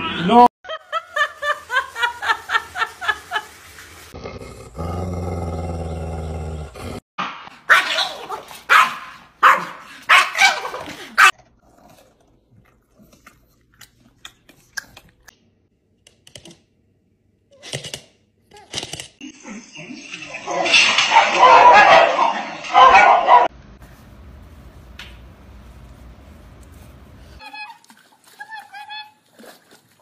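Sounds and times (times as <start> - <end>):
small dog barking: 7.7 - 11.3, 21.2 - 23.5
steady low hum: 23.6 - 27.4.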